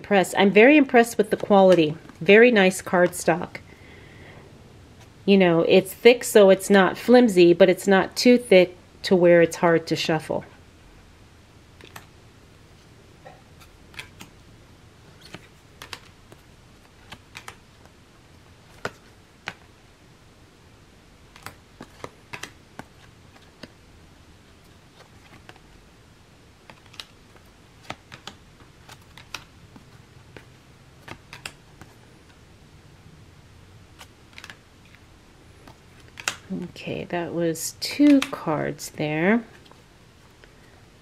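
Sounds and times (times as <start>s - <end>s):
cards flipping and snapping: 11.8s - 12.1s, 13.5s - 14.4s, 15.1s - 18.0s, 18.6s - 19.7s, 21.3s - 23.8s, 24.7s - 25.7s, 26.6s - 32.4s, 33.9s - 36.5s, 38.0s - 38.4s.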